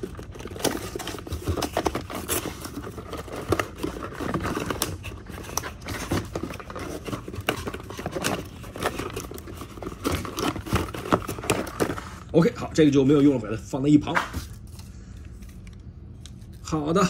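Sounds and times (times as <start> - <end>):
cardboard tearing and scraping: 0.0 - 12.2.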